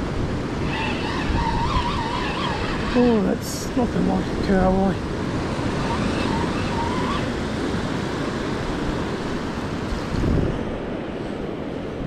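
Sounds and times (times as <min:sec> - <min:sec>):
surf washing on beach: 0:00.0 - 0:12.0
wind buffeting microphone: 0:00.0 - 0:12.0.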